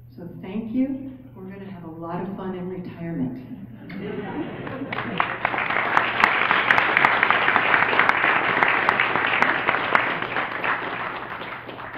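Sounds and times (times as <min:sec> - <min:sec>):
audience applauding: 0:04.0 - 0:11.9.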